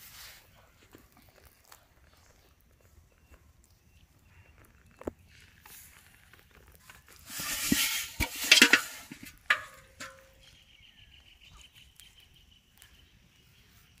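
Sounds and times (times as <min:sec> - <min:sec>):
rustling and splashing: 0:05.3 - 0:10.4.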